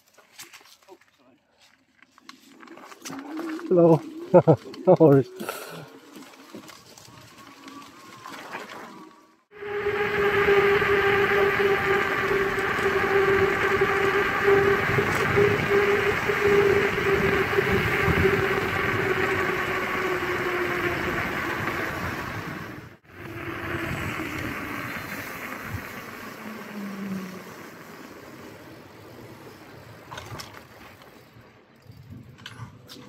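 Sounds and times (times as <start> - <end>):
electric motor whining: 6.7 - 28.2
tyre and wind noise: 9.6 - 33.0.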